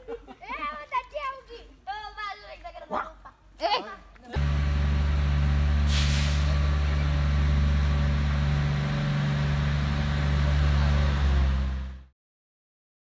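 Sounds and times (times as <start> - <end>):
diesel locomotive engine hum: 4.4 - 12.1
short hiss: 5.8 - 6.6.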